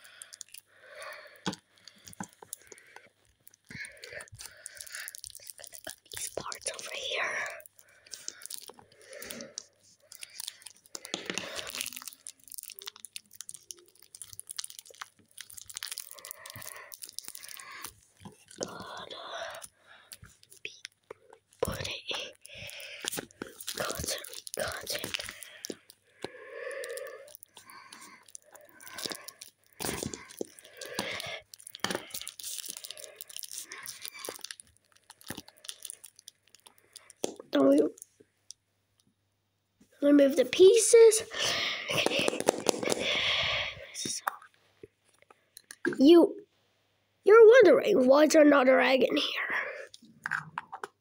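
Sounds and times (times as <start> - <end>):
plastic and paper crinkling: 1.4 - 38.2, 40.2 - 44.4.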